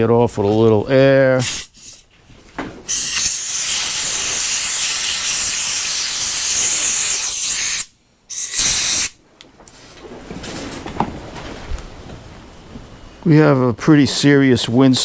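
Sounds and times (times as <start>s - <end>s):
compressed air blow gun hissing: 1.4s - 2.0s, 2.9s - 9.2s.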